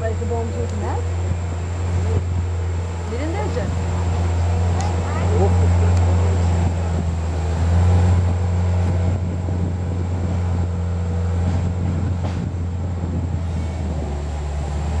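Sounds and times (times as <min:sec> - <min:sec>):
vehicle engine idling: 0:00.0 - 0:15.0.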